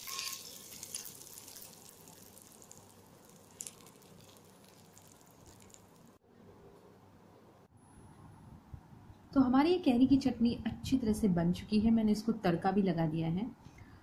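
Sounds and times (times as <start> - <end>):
oil sizzling and crackling: 0.0 - 6.2.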